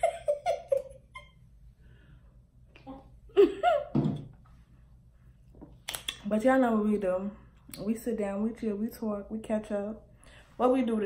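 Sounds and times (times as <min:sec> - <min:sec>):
woman laughing: 0:00.0 - 0:01.4, 0:03.3 - 0:04.0.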